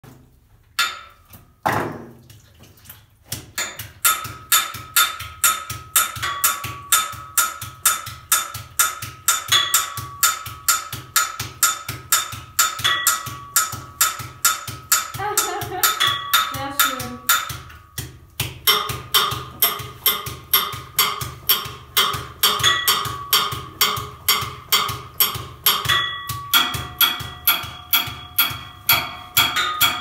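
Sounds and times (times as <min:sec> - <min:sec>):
metal pipe ringing: 0:00.8 - 0:02.0, 0:03.6 - 0:18.1, 0:18.7 - 0:30.0
techno drum beat: 0:11.0 - 0:17.7.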